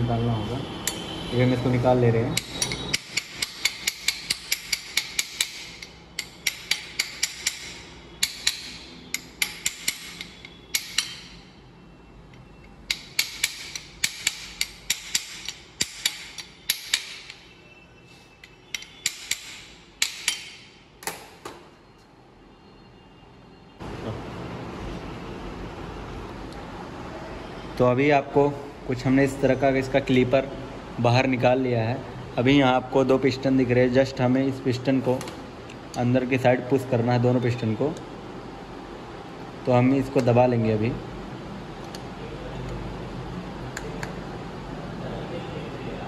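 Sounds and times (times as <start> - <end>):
steel rod tapping metal: 0.8 - 1.0, 2.4 - 11.5, 12.3 - 17.5, 18.4 - 21.2.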